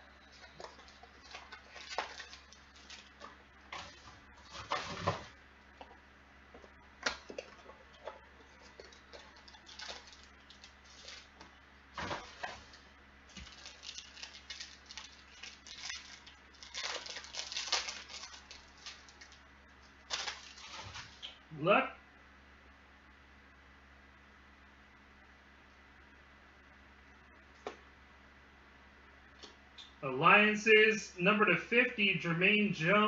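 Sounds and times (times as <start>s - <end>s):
foil wrappers crinkling: 0.2s - 5.3s, 7.0s - 21.3s.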